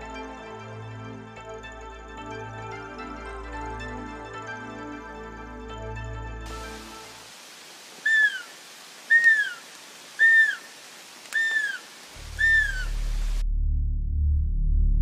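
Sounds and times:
deer call high peeps: 0:08.1 - 0:10.7, 0:11.3 - 0:13.0.

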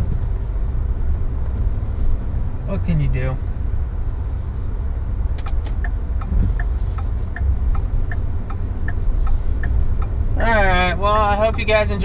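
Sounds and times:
car engine and road rumble: 0:00.0 - 0:12.0
turn signal clicking: 0:05.3 - 0:12.0.

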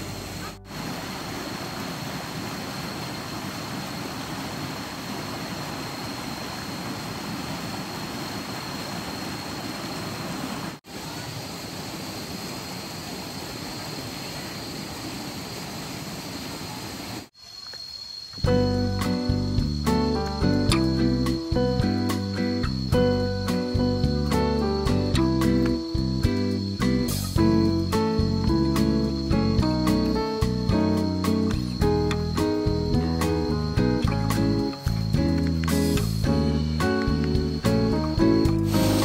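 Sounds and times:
stream running over rocks: 0:00.0 - 0:17.3, 0:38.6 - 0:39.0.

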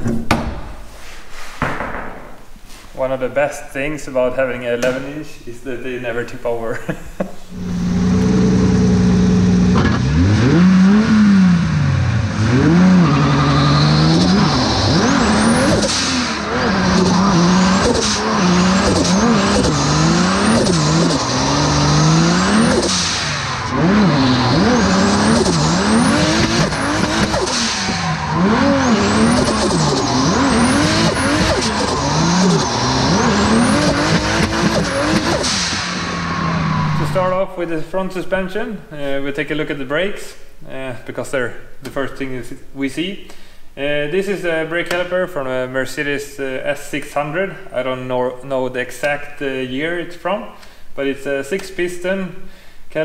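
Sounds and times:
car engine revving hard: 0:07.5 - 0:37.3
tyres squealing: 0:12.9 - 0:35.3.

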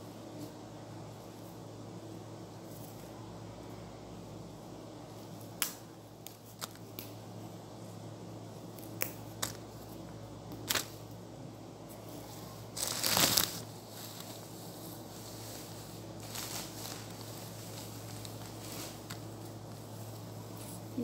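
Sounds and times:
herb stems snapping: 0:05.6 - 0:07.2, 0:08.8 - 0:09.6
leaves rustling: 0:12.3 - 0:21.0.

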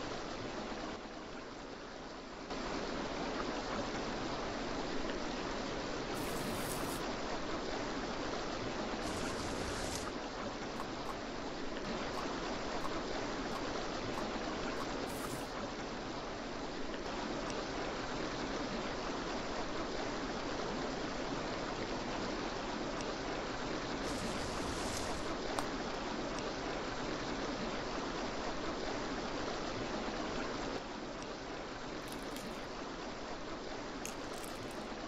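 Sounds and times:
bright hiss: 0:06.1 - 0:07.0, 0:09.0 - 0:10.1, 0:14.8 - 0:15.6, 0:24.0 - 0:25.4.

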